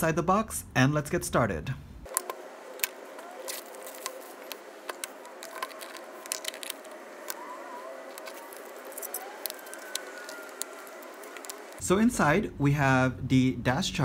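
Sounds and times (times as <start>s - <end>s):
cardboard box packaging rustling: 3.2s - 11.8s.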